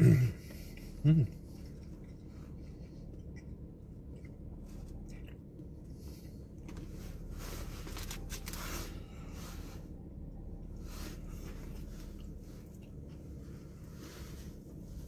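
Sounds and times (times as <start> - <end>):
low hum: 0.0 - 15.0
person chewing crispy food: 0.4 - 6.8, 7.6 - 9.3, 11.2 - 14.6.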